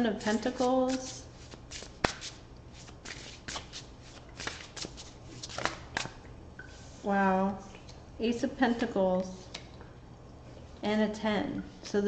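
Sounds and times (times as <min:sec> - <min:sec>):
cards being shuffled: 0:00.2 - 0:06.2.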